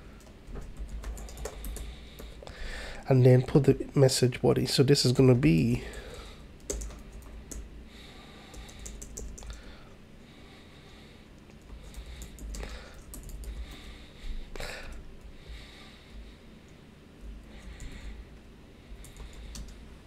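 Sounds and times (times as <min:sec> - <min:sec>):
low steady hum: 0:00.0 - 0:20.0
computer keyboard typing: 0:00.2 - 0:02.4, 0:05.9 - 0:07.7, 0:08.5 - 0:09.7, 0:11.6 - 0:13.8, 0:19.0 - 0:19.8.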